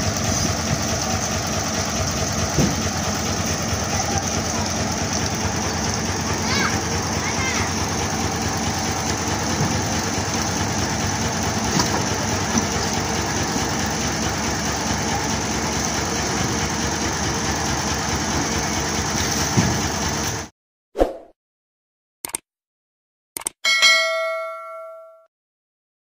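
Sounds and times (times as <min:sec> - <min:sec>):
diesel truck engine idling: 0:00.0 - 0:20.5.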